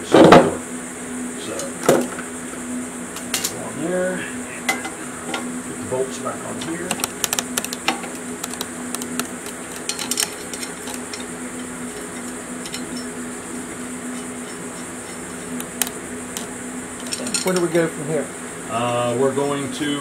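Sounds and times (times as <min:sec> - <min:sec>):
steady low hum: 0:00.0 - 0:20.0
metal bolts clinking: 0:06.6 - 0:13.2, 0:16.4 - 0:17.8.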